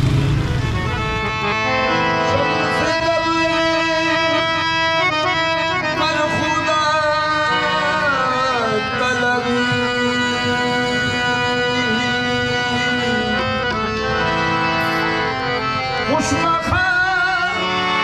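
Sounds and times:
harmonium chords: 0:00.0 - 0:18.0
tabla: 0:00.0 - 0:18.0
man singing: 0:01.9 - 0:13.8, 0:15.9 - 0:18.0.

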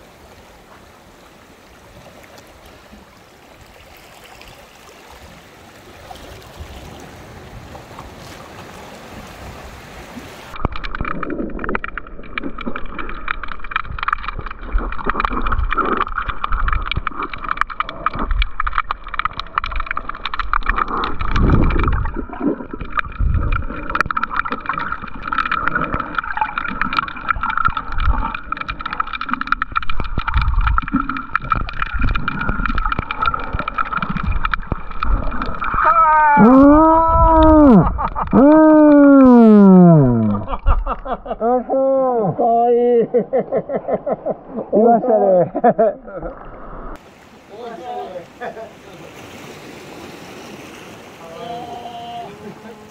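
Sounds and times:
muffled underwater sloshing: 0:00.0 - 0:41.4.

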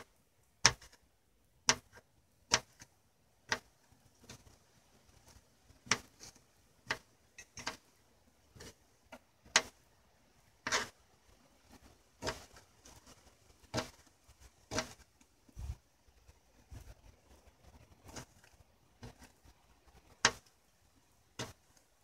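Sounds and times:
knife chopping on plastic cutting board: 0:00.6 - 0:01.0, 0:01.6 - 0:02.9, 0:03.5 - 0:04.6, 0:05.8 - 0:07.9, 0:10.6 - 0:11.0, 0:12.2 - 0:12.6, 0:13.7 - 0:14.1, 0:14.7 - 0:15.0, 0:20.1 - 0:20.5.

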